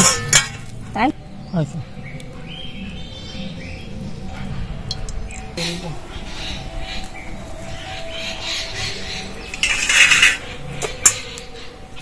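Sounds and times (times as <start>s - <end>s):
steel bowls and utensils clinking: 0.0s - 0.9s, 9.4s - 11.4s.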